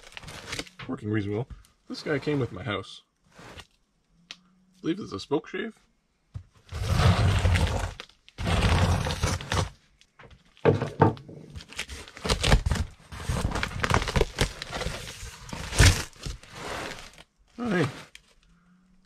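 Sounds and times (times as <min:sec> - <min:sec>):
cardboard crinkling: 0:00.0 - 0:00.8, 0:06.7 - 0:09.8, 0:11.5 - 0:18.4
tape tearing: 0:00.0 - 0:00.8, 0:06.7 - 0:09.8, 0:11.5 - 0:18.4
blade scraping tape on cardboard: 0:06.7 - 0:09.8.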